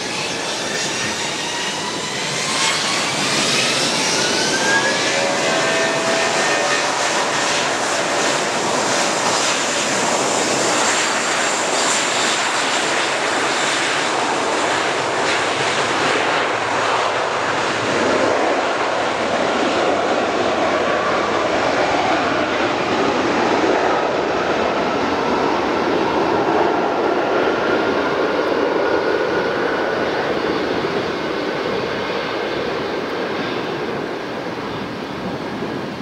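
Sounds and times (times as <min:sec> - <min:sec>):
jet engines spooling up: 0:00.0 - 0:36.0
steady jet roar: 0:00.0 - 0:36.0.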